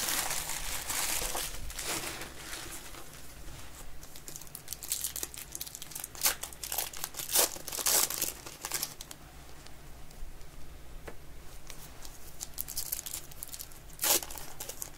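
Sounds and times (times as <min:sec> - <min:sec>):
foil wrapper tearing and crinkling: 0:00.0 - 0:03.0, 0:04.0 - 0:09.2, 0:12.4 - 0:14.9.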